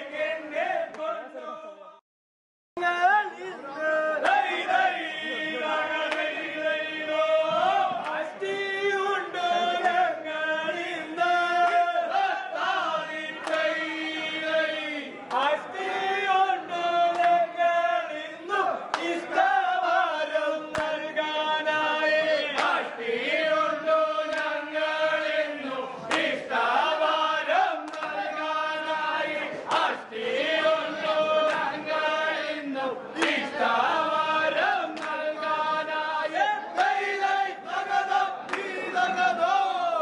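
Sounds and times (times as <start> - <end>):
men chanting in unison: 3.2 - 40.0.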